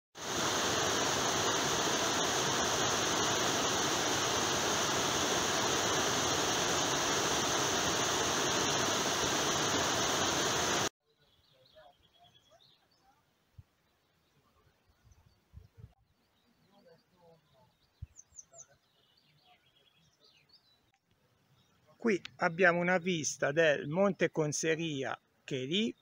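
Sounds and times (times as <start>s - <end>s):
stream rushing over rocks: 0.2s - 10.9s.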